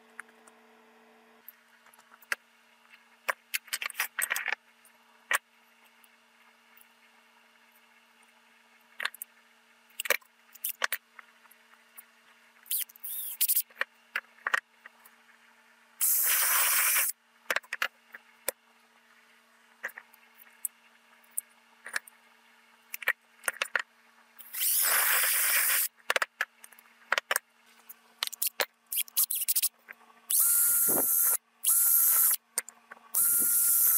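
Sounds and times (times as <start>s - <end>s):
drill boring through wood: 24.5s - 25.9s, 30.3s - 32.4s, 33.2s - 33.9s.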